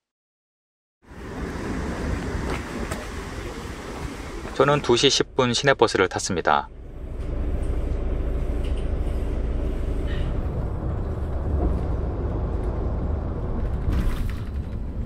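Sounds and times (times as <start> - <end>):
bus engine and road rumble: 1.0 - 15.0.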